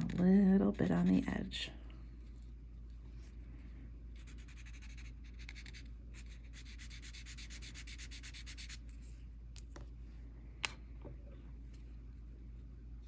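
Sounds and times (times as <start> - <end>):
scratchy rubbing on paper: 4.2 - 9.0.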